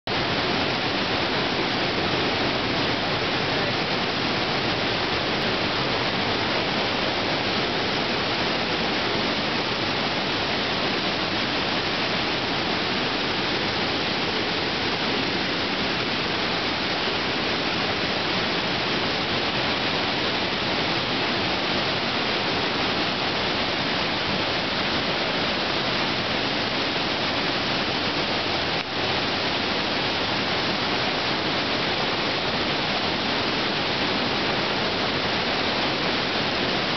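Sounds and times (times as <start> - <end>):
cave waterfall rushing: 0.1 - 36.9.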